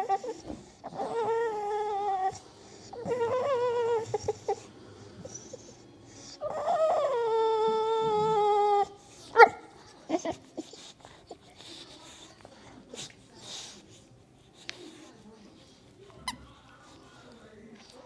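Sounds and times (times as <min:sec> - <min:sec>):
dog whining: 0:00.0 - 0:11.6.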